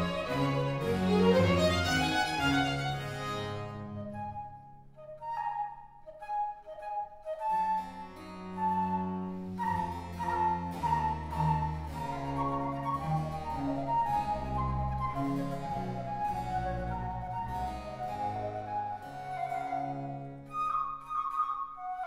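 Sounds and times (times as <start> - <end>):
low strings: 0.0 - 4.4, 7.9 - 20.8
flute melody: 0.0 - 22.0.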